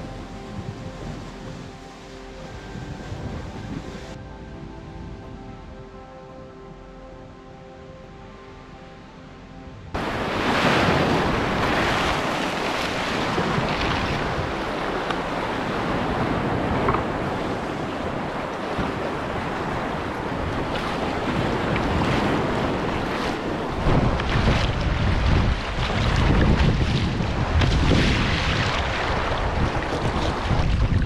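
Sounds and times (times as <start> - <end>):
wind buffeting microphone: 0.0 - 6.7, 9.7 - 31.0
soft music: 0.0 - 23.8
paddle strokes splashing: 10.0 - 31.0
waves breaking on rocky shore: 10.0 - 31.0.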